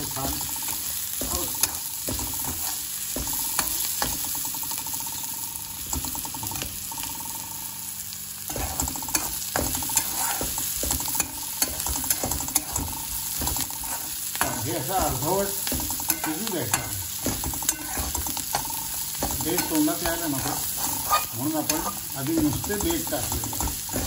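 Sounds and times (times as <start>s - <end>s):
frying sizzle: 0.0s - 24.0s
metal spatula scraping pan: 1.3s - 4.2s, 8.5s - 23.1s
spatula clicking against pan: 10.8s - 12.9s, 14.4s - 20.3s, 21.7s - 24.0s.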